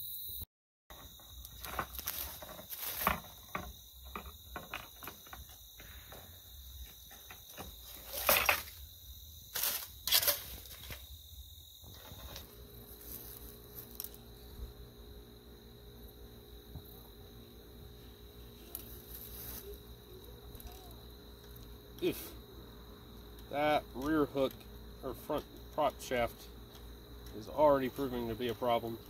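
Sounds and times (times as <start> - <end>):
insects trilling: 0.0 - 29.0
leaves and branches rustling: 1.0 - 14.8, 16.8 - 21.8.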